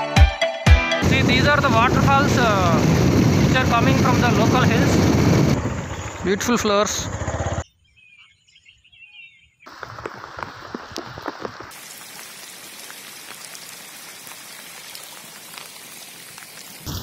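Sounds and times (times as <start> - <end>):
rain drops hitting rock: 9.7 - 17.0
steady hiss of rain: 9.7 - 17.0.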